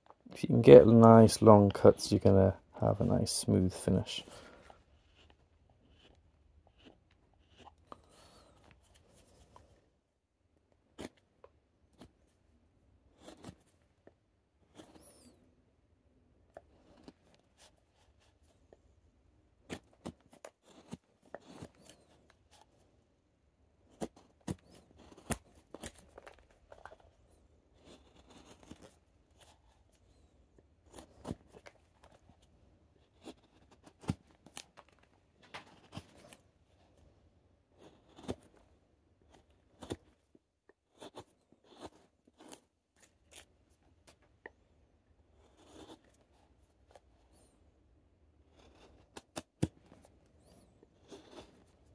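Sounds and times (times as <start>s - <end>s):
knife slicing wood shavings: 41.0s - 43.5s.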